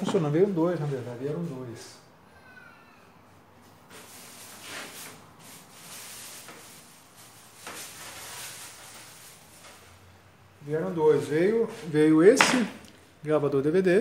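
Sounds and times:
hardware rustling and scraping: 0.0s - 1.9s, 3.6s - 10.1s.

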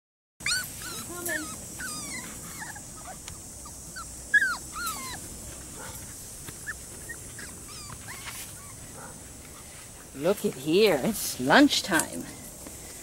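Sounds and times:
puppies whimpering and whining: 0.4s - 5.3s, 6.6s - 8.8s.

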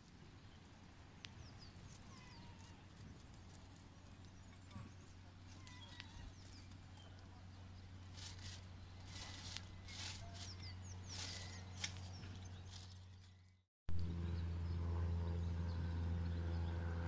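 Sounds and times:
small birds chirping: 0.0s - 13.6s.

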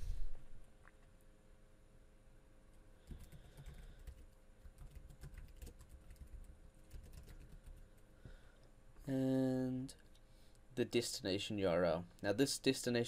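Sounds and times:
computer keyboard typing: 3.0s - 8.0s.

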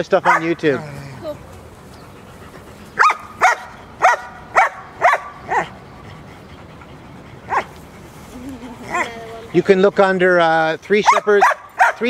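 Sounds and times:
dog barking: 0.2s - 0.8s, 3.0s - 5.8s, 7.5s - 7.7s, 11.0s - 12.0s.

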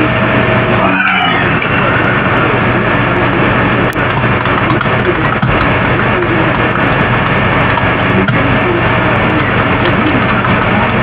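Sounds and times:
faint warbling tones: 0.0s - 4.4s
loud hiss and hum: 0.0s - 11.0s.

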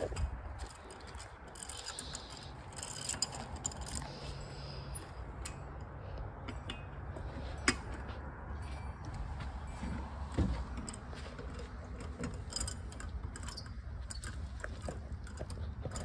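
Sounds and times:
hand tools clicking and rattling: 0.0s - 16.0s
steady low hum: 0.0s - 16.0s.

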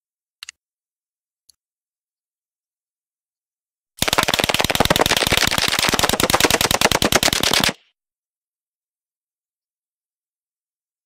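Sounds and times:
submachine gun automatic fire: 4.0s - 7.8s.

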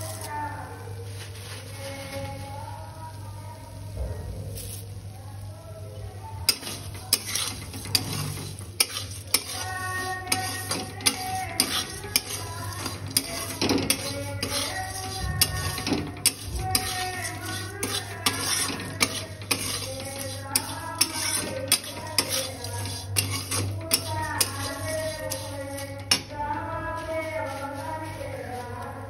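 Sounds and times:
metal spatula scraping iron pan: 6.5s - 28.0s.

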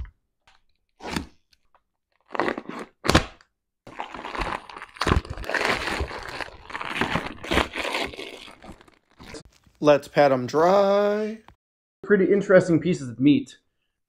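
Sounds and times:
plastic packaging crinkling: 3.9s - 9.7s.

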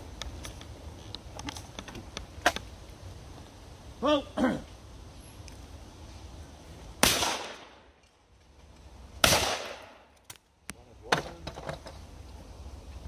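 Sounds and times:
shotgun shots: 7.0s - 7.8s, 9.2s - 10.0s.

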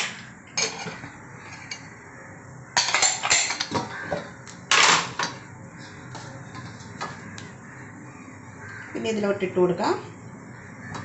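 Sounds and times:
metal utensils clattering: 0.0s - 1.8s, 2.8s - 3.9s, 4.7s - 5.3s.

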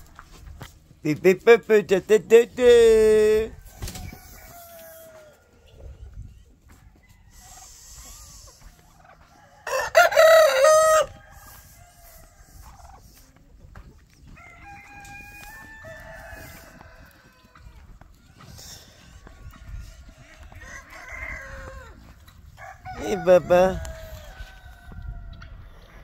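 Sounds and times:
rooster crowing: 3.6s - 5.6s, 9.2s - 12.4s, 14.3s - 18.5s, 19.6s - 25.4s.

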